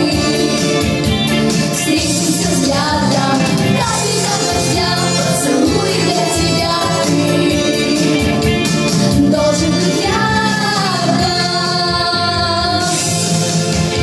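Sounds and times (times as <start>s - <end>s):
pop backing track with beat: 0.0s - 14.0s
young female voice singing: 9.2s - 13.0s.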